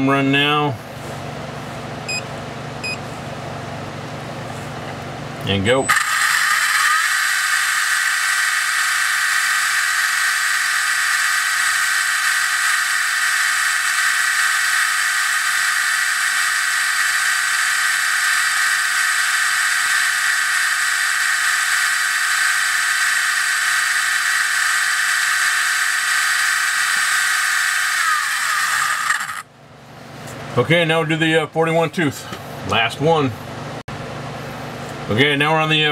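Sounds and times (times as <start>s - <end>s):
high-pitched motor and gear whine: 5.5s - 29.5s.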